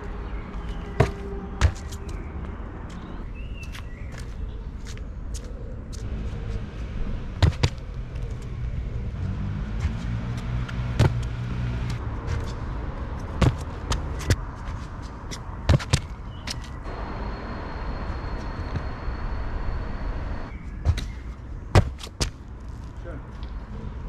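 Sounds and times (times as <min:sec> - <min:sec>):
city traffic rumble: 0:00.0 - 0:24.0
vehicle engine passing: 0:08.1 - 0:14.2.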